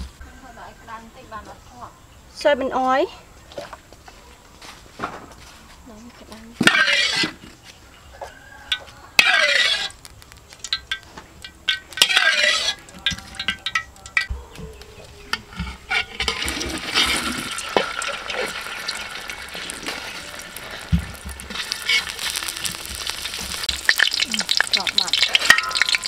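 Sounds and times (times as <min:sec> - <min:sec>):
rice cakes sizzling in hot oil: 0:16.1 - 0:26.0
metal spatula clinking on wok: 0:24.5 - 0:26.0.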